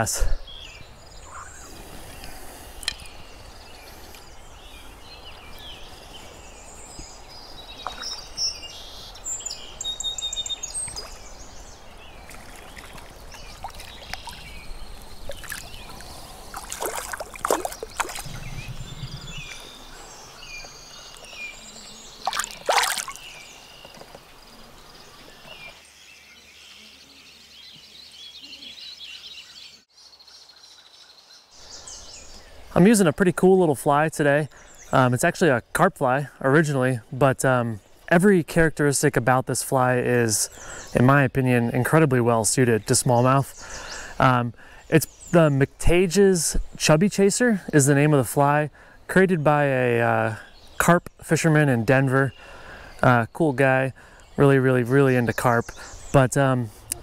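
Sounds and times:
birds singing: 0.0s - 57.0s
river flowing: 10.6s - 23.8s
water splashing and sloshing: 12.1s - 20.0s, 22.2s - 24.0s.

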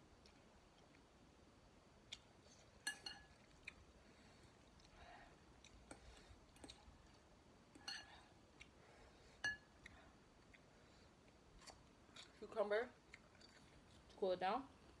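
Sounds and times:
fork clinking on glass bowl: 2.8s - 3.3s, 7.8s - 8.1s, 9.4s - 9.7s.

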